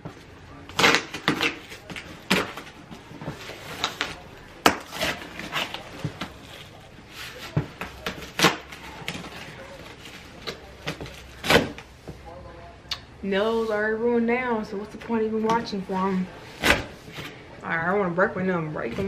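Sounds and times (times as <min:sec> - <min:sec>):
cardboard ripping: 0:00.7 - 0:11.9.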